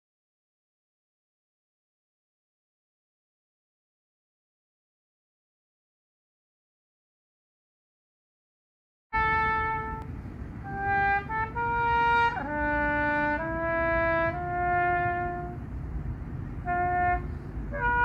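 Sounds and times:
solo trumpet bugle call: 0:09.1 - 0:15.7, 0:16.6 - 0:18.0
steady low rumble: 0:09.2 - 0:18.0.

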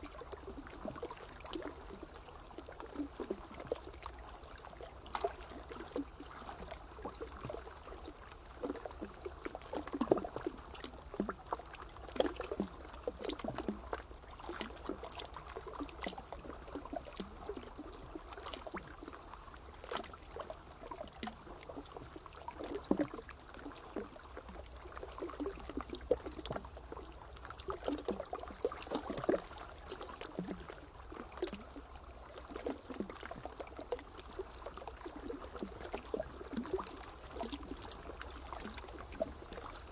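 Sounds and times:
water trickling and splashing: 0:00.0 - 0:39.9.

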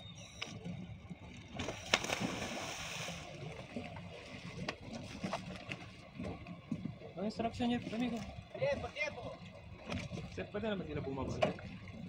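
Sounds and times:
churning water: 0:00.2 - 0:12.0
diver splashing into water: 0:01.6 - 0:03.3.

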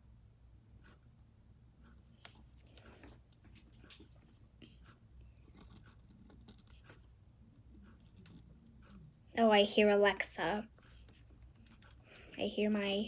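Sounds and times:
low steady hum: 0:00.0 - 0:13.0
marker scratching on paper: 0:02.1 - 0:09.1, 0:10.7 - 0:13.0.

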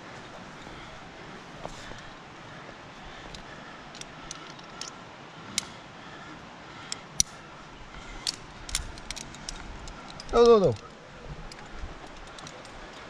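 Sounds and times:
faint steady hiss: 0:00.0 - 0:13.0
climbing gear clicking and clinking: 0:03.2 - 0:05.7, 0:08.2 - 0:13.0.

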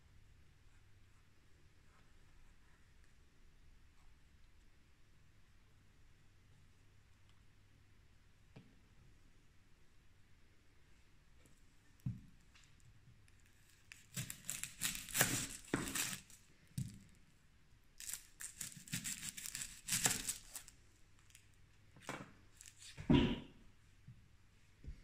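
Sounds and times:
onion skin crackling and tearing: 0:13.4 - 0:17.0, 0:18.0 - 0:21.4.

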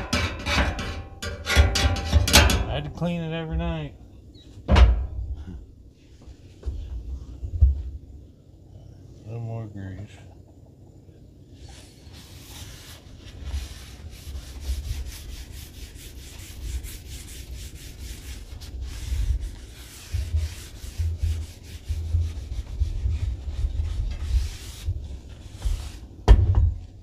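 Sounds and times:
dull low bumps: 0:02.6 - 0:08.3, 0:18.6 - 0:27.0
paper towel wiping steel griddle: 0:11.6 - 0:26.2.

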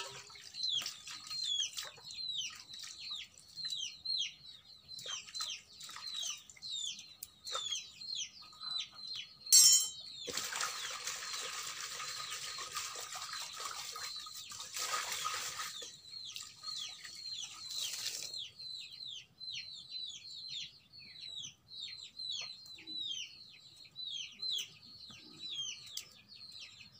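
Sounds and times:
chicks peeping: 0:00.0 - 0:10.3, 0:15.8 - 0:26.9
hands splashing water in pot: 0:10.3 - 0:15.8.

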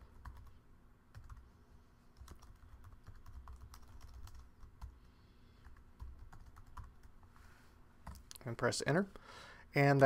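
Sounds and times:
low steady hum: 0:00.0 - 0:10.0
typing on computer keyboard: 0:01.1 - 0:01.4, 0:02.2 - 0:05.0, 0:05.6 - 0:07.1.

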